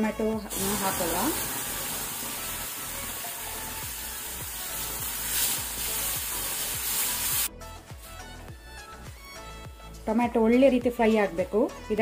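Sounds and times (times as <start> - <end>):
puree sizzling in hot oil: 0.4 - 8.4.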